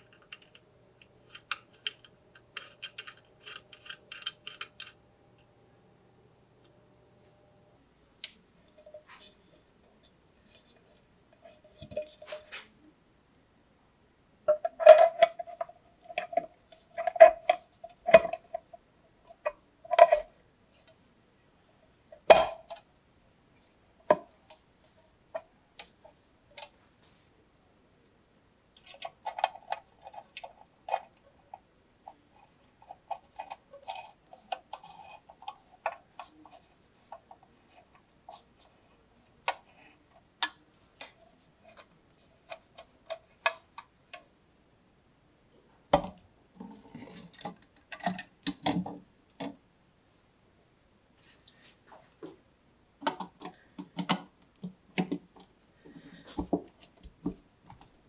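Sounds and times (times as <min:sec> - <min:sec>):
metal parts clinking and knocking: 0:01.3 - 0:05.0
screwdriver turning small screws: 0:01.3 - 0:05.0.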